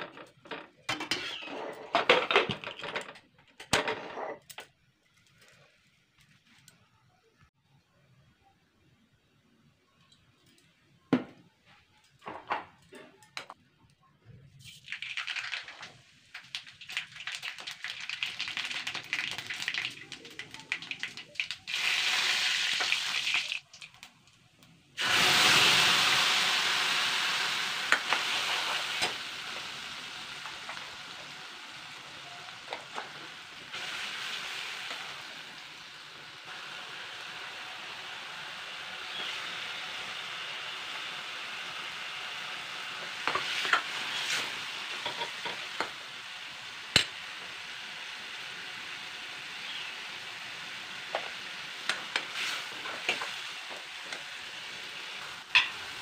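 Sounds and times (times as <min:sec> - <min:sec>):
loud sizzle of paste frying: 0:14.2 - 0:56.0
hot oil crackling: 0:14.6 - 0:56.0.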